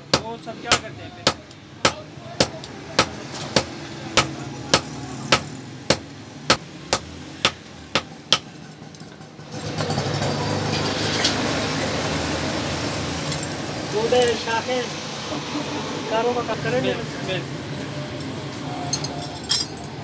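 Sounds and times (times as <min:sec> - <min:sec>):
hammer striking hot iron on anvil: 0:00.1 - 0:08.5.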